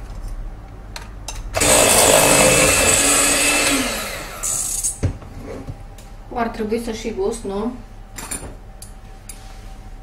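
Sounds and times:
electric hand mixer running: 1.6 - 5.0.

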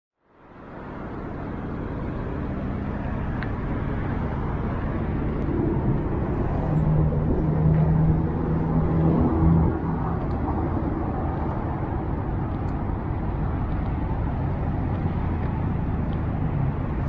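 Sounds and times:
road traffic: 0.2 - 17.0
low engine hum: 0.3 - 17.0.

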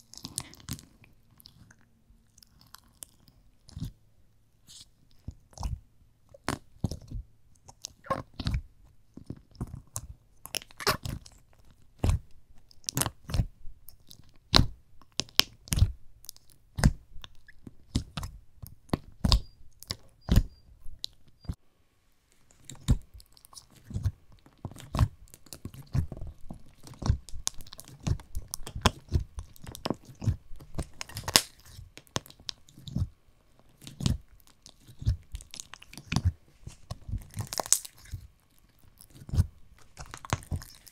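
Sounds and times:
slime popping and crunching: 4.7 - 21.2, 22.6 - 33.1, 33.7 - 40.9.

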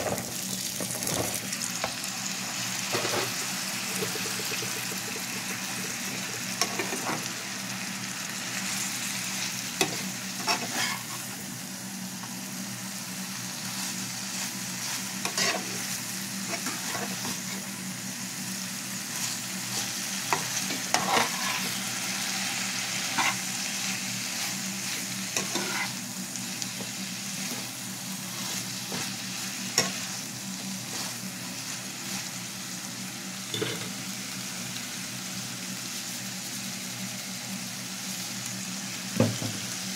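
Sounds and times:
vegetables sizzling in a frying pan: 0.0 - 39.9
metal spatula scraping a pan: 9.8 - 11.2, 14.8 - 15.8, 16.5 - 17.6, 19.7 - 21.8, 23.2 - 23.4, 24.4 - 26.0.

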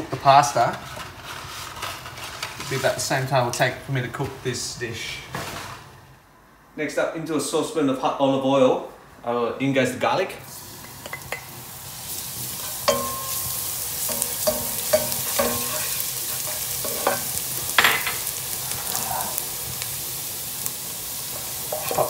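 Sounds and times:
garlic sizzling in oil: 10.4 - 22.0
wooden spoon knocking and scraping pan: 12.6 - 18.3, 21.7 - 22.0.

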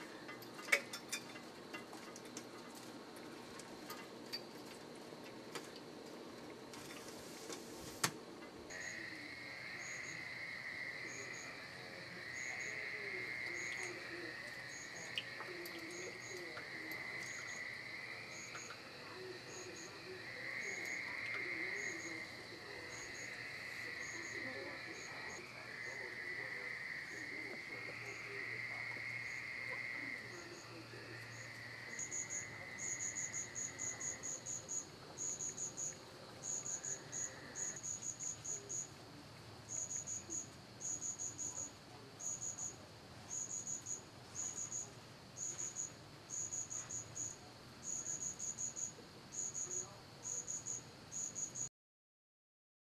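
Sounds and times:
crickets droning: 0.0 - 51.7
high insect chirps: 8.7 - 39.0, 39.6 - 51.7.

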